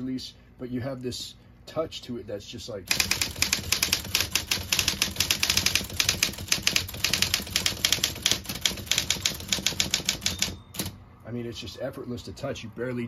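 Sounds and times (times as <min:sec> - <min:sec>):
typewriter keys striking: 0:02.9 - 0:10.9
typewriter motor humming: 0:02.9 - 0:11.0.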